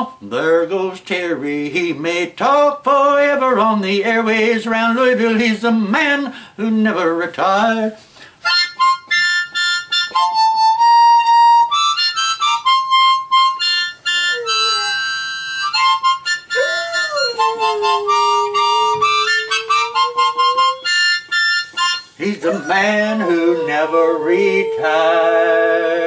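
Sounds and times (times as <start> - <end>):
harmonica tune: 8.4 - 25.5
dog howling: 14.2 - 15.4, 16.5 - 21.6, 22.4 - 25.9.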